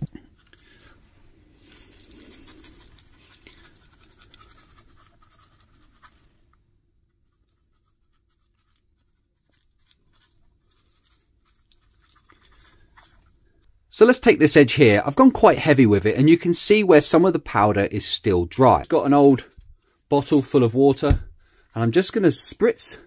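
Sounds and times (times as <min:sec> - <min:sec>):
dry grit pouring onto cement: 0:01.4 - 0:06.2.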